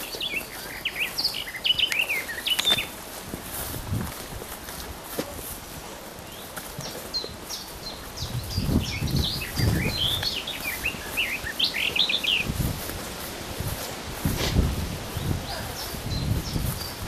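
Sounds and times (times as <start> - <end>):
songbird chirping: 0.0 - 3.7, 5.2 - 14.2, 15.0 - 17.0
footsteps in tall grass: 0.0 - 17.0
legs brushing through grass: 0.0 - 17.0.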